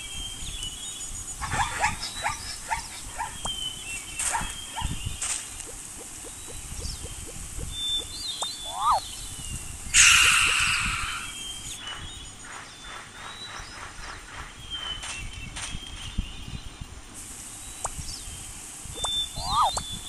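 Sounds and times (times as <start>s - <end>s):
faint bird chirps: 0.0s - 20.0s
loud hiss-like noise burst: 0.8s - 20.0s
bark-like animal calls: 1.4s - 3.4s, 4.2s - 5.0s, 8.6s - 9.0s, 19.4s - 19.8s.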